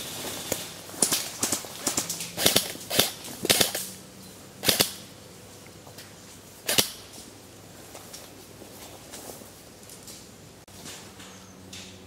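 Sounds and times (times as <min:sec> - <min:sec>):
airsoft rifles firing bursts: 0:00.0 - 0:04.0, 0:04.6 - 0:05.1, 0:06.7 - 0:07.0.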